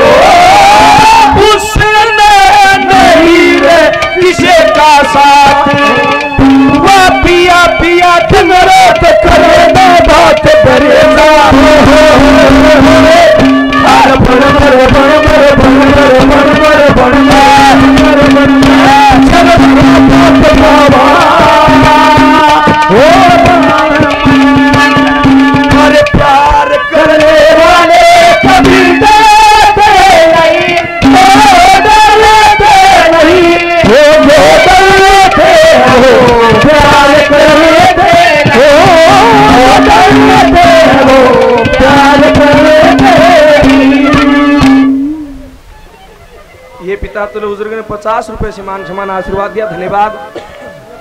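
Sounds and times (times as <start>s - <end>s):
folk song melody over drone: 0.0s - 51.0s
quick hand-drum beats: 0.0s - 51.0s.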